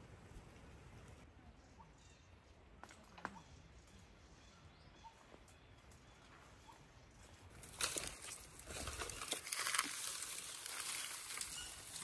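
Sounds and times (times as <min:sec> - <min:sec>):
leaves crunching underfoot: 0:07.6 - 0:12.0.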